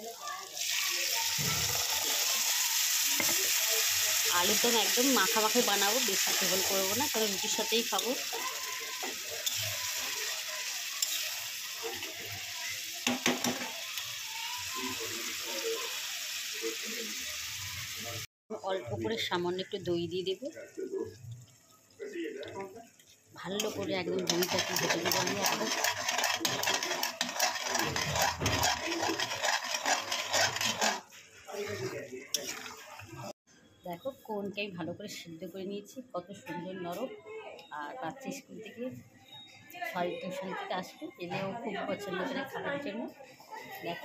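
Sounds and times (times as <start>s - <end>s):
curry bubbling and sizzling: 0.0s - 18.3s, 20.1s - 33.4s
spatula scraping a pan: 1.2s - 15.4s, 23.6s - 33.3s.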